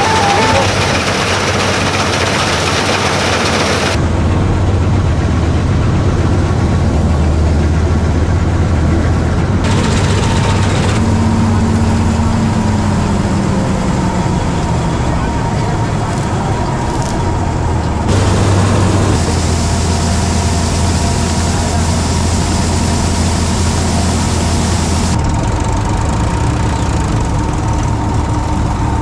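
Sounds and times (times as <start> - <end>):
combine harvester engine hum: 0.0 - 29.0
rattling machinery: 0.0 - 29.0.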